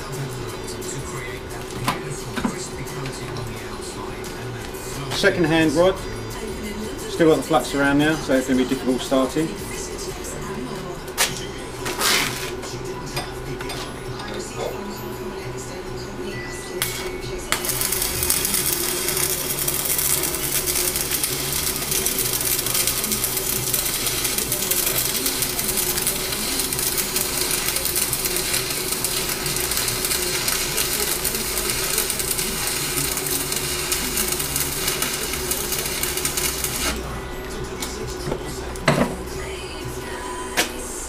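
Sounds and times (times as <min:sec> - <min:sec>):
welding arc crackling: 0:16.8 - 0:37.2.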